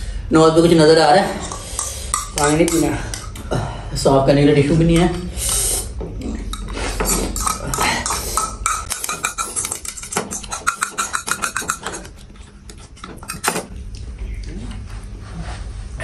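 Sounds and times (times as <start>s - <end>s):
chopsticks clicking on bowls: 1.4s - 3.4s, 6.3s - 14.0s.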